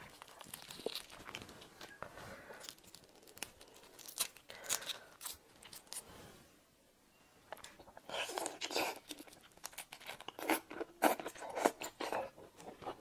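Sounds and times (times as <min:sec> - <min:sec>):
prawn shell cracking and peeling: 0:00.0 - 0:06.0, 0:08.2 - 0:12.0.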